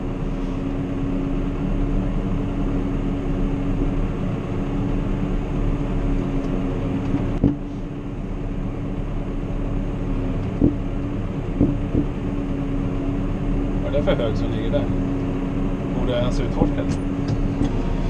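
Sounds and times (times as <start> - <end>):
tractor diesel engine running: 0.0 - 18.0
short knocks: 11.6 - 12.1.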